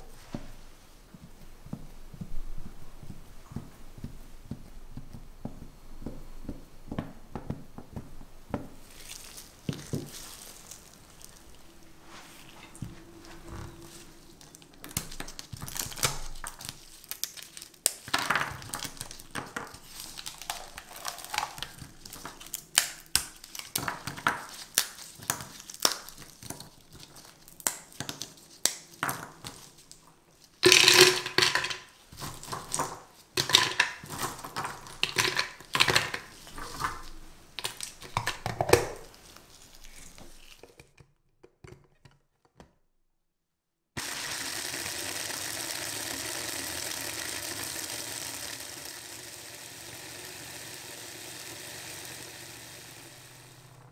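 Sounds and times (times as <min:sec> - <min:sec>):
caramel cracking and snapping: 0:14.4 - 0:41.0.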